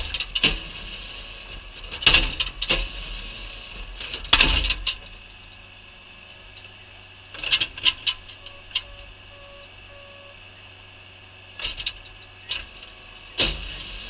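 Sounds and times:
skid steer engine running: 0.0s - 14.0s
short beeps: 8.3s - 10.5s.

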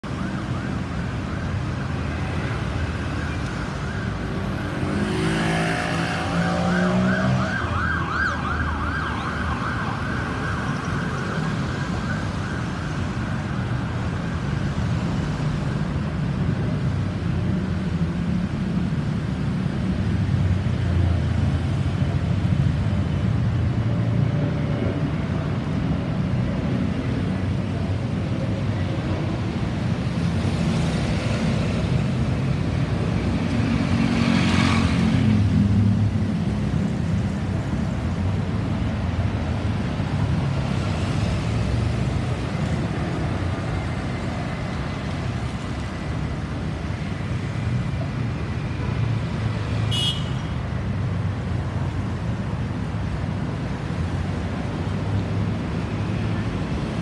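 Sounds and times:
road traffic noise: 0.0s - 57.0s
fast warbling siren: 5.9s - 12.8s.

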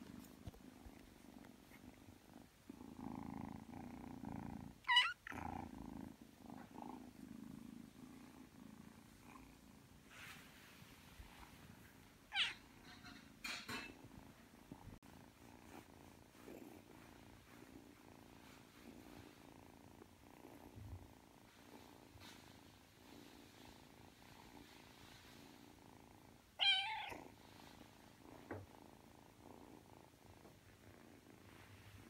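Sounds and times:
kitten purring: 0.0s - 32.0s
kitten meowing: 4.9s - 5.2s, 12.3s - 12.6s, 26.6s - 27.2s.

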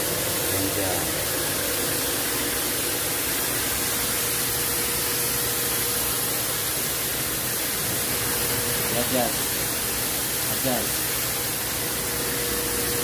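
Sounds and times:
electric pump motor humming: 0.0s - 13.0s.

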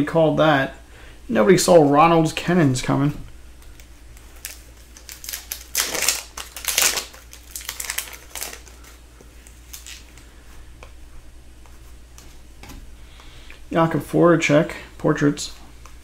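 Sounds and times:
cards rustling and ticking: 3.6s - 11.0s
foil wrapper crinkling: 3.7s - 10.3s.

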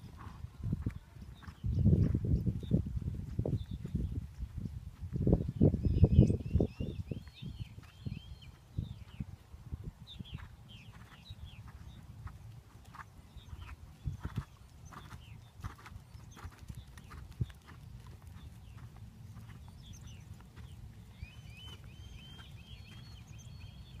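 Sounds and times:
horse hoofbeats on sand: 0.0s - 5.2s, 10.2s - 24.0s.

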